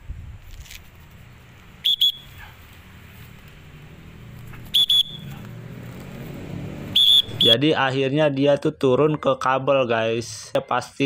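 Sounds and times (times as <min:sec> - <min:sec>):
sharp high whistle blasts: 0:01.8 - 0:02.5, 0:04.7 - 0:05.4, 0:06.9 - 0:07.6.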